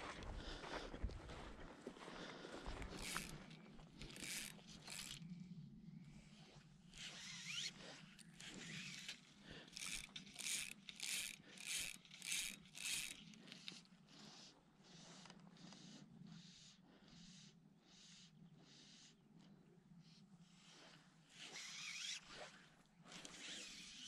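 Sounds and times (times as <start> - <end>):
fly reel click drag zipping: 3.0 - 5.3, 6.9 - 13.8.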